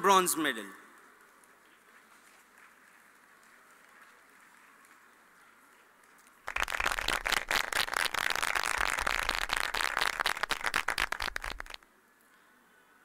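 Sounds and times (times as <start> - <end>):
audience clapping: 2.4 - 5.0, 6.0 - 11.8.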